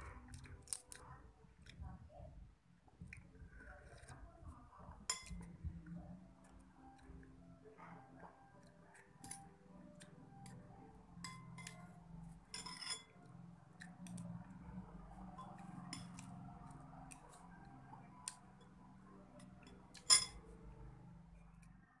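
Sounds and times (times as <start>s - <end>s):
metal spoon clinking on ceramic bowl: 5.1s - 5.5s, 11.2s - 13.3s, 15.3s - 16.4s, 19.4s - 20.5s.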